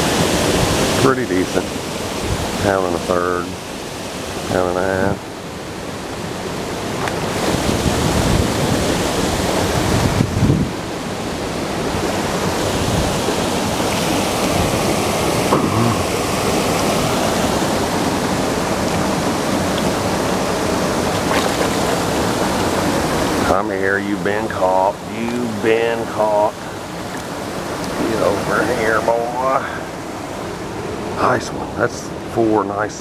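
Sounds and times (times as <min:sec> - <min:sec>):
waterfall rushing: 0:00.0 - 0:33.0
bumps on microphone: 0:15.5 - 0:16.2.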